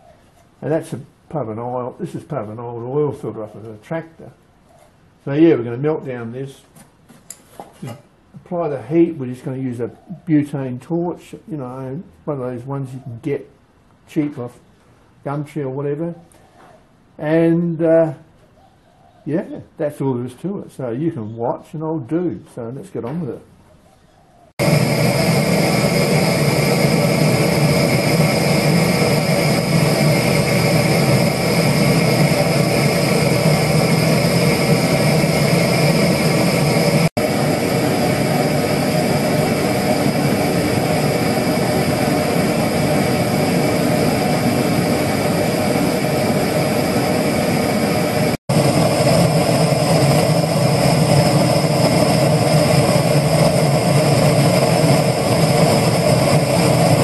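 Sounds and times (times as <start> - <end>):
gas torch flame roaring: 24.5 - 57.0.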